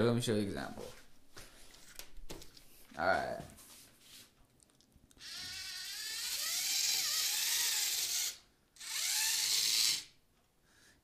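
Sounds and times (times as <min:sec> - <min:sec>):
electric motor whine: 0:05.2 - 0:10.1.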